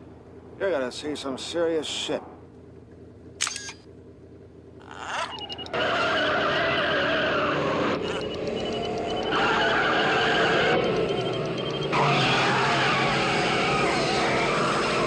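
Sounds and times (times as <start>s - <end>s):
car engine revving: 5.3s - 15.0s.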